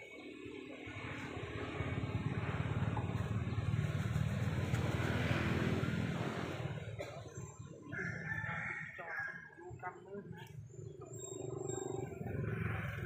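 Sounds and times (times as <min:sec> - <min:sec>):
vehicle engine passing by: 0:00.6 - 0:08.0, 0:11.0 - 0:13.0.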